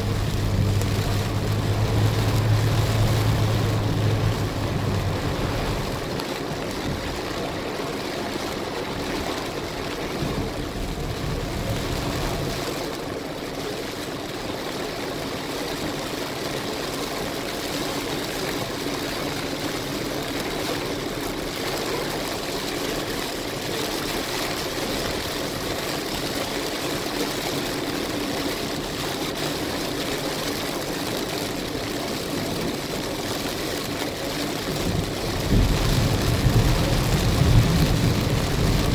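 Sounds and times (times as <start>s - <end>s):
heavy rain on car windshield: 0.0s - 38.9s
tyres hissing on wet road: 0.0s - 38.9s.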